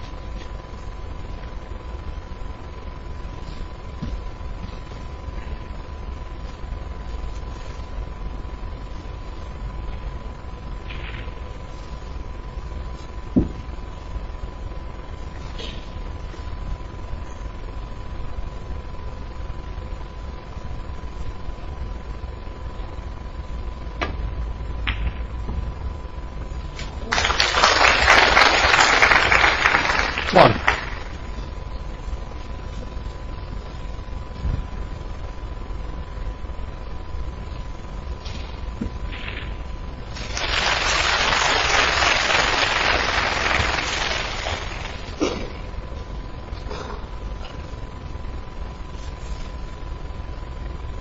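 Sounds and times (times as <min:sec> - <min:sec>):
snooker balls clicking: 0:24.8 - 0:25.3
audience applause: 0:27.0 - 0:31.2, 0:40.2 - 0:45.2.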